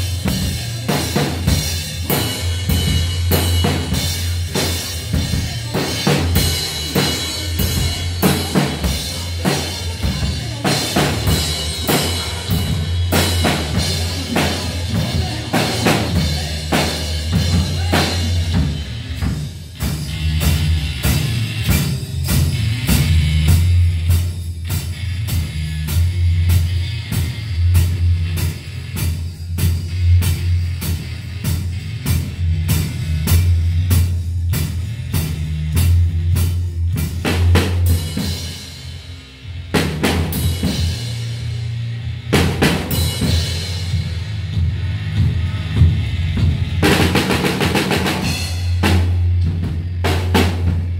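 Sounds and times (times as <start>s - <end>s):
rock drum kit beat: 0.0s - 50.9s
sustained low bass notes: 0.0s - 50.9s.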